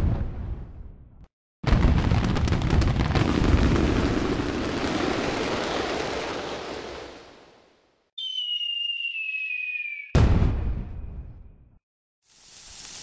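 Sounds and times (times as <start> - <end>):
fireworks crackling: 1.8 - 7.7, 12.3 - 13.0
firework boom: 10.2 - 11.6.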